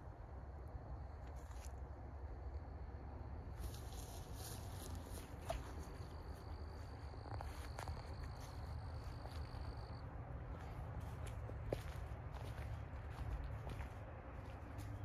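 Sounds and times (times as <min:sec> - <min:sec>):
footsteps on leafy path: 0:03.6 - 0:15.0.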